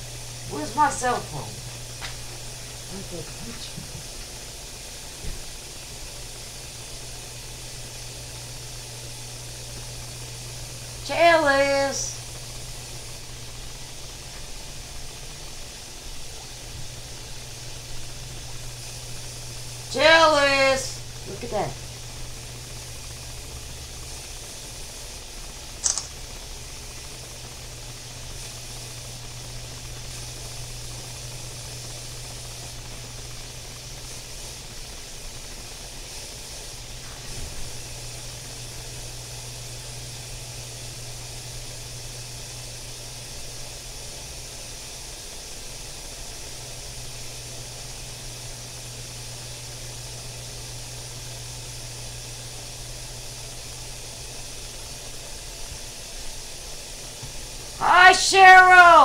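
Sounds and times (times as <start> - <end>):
steady hiss: 0.0 - 59.0
sharp click: 25.8 - 26.2.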